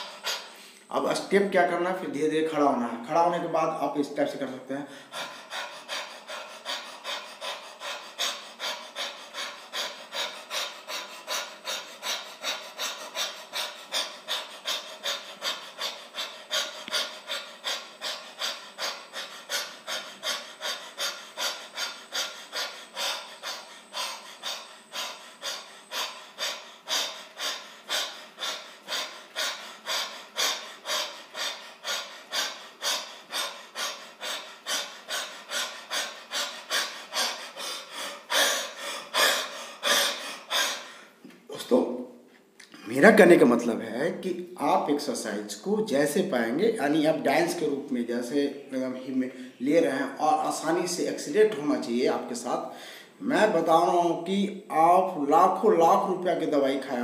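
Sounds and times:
man panting rapidly: 0.0 - 0.8, 4.5 - 41.2.

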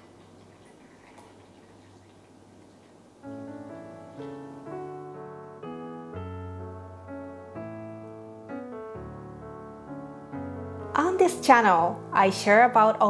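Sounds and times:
piano music: 3.2 - 13.0.

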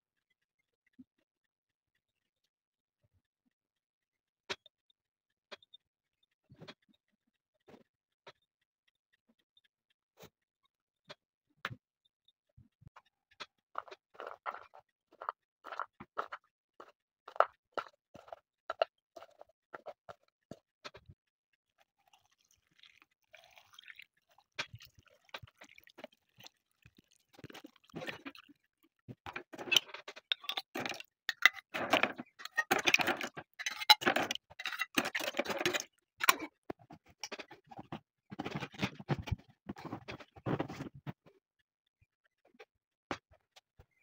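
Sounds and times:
brine trickling: 22.0 - 28.6
metal lids scraping on glass jars: 29.3 - 36.5
garlic cloves dropping into glass jars: 29.4 - 36.5.

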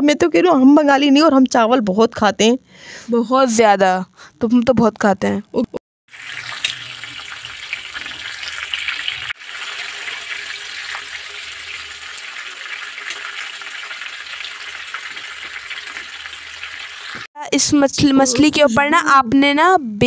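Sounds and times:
fish sizzling in hot oil: 6.1 - 17.3.

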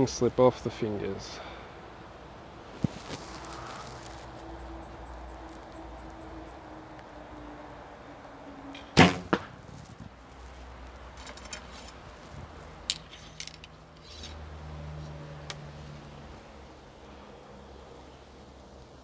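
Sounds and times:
quieter smack: 8.8 - 9.6.

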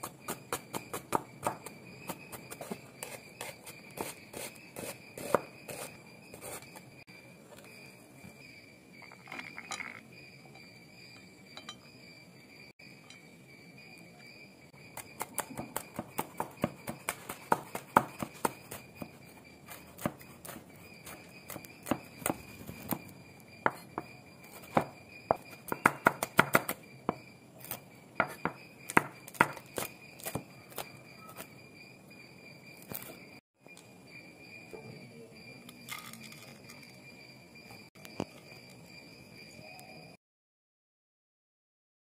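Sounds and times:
knife chopping on wooden board: 0.3 - 6.6, 15.2 - 19.1, 20.0 - 24.1, 24.7 - 27.2, 28.2 - 30.8
high-pitched whine: 26.7 - 40.2.

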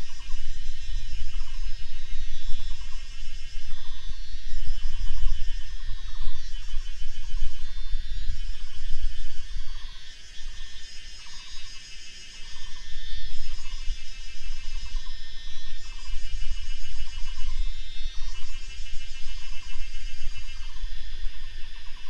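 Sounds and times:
high insect trills: 0.0 - 22.0.

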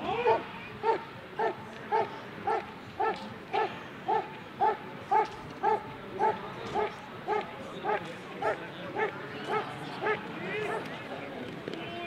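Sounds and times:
dog barking: 0.8 - 10.2.

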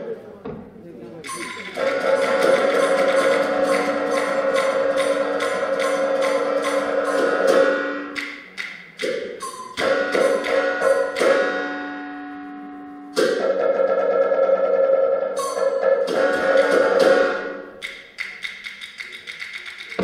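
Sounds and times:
clapper and cymbal strikes: 1.3 - 12.2
ringing gongs: 1.3 - 14.4.

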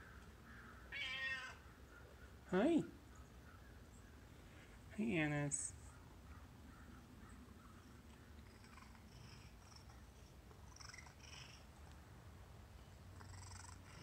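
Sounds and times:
cat purring: 8.4 - 12.0, 13.0 - 14.0.

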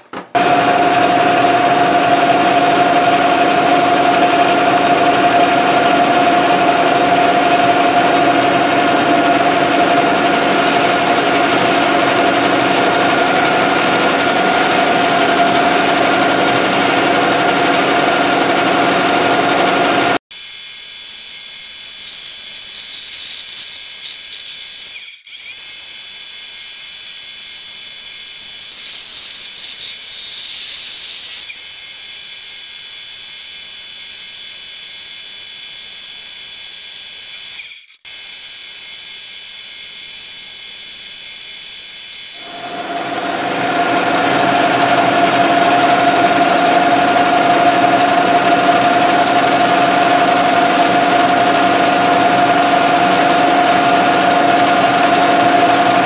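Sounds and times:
lathe drive humming: 0.4 - 20.2, 39.5 - 56.0
lathe tool cutting steel ringing: 20.4 - 46.9.

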